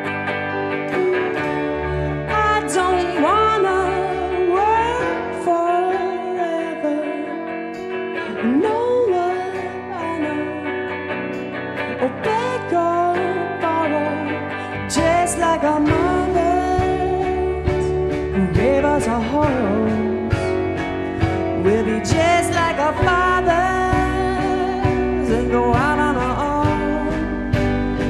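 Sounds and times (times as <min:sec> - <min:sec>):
electric guitars: 0:00.0 - 0:28.0
man singing: 0:12.0 - 0:20.6, 0:21.5 - 0:28.0
bass and drums: 0:14.9 - 0:28.0.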